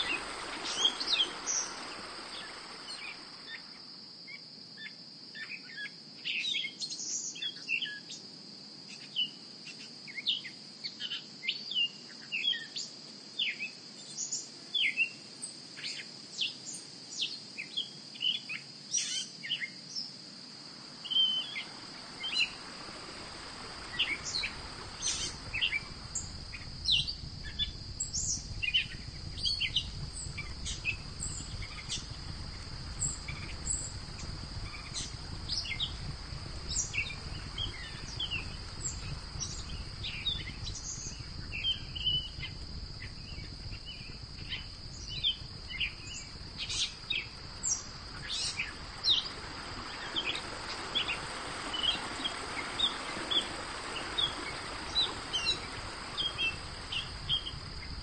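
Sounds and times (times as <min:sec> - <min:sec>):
low rushing noise: 0:00.0 - 0:03.8, 0:20.7 - 0:44.2
high insect trill: 0:00.0 - 0:58.0.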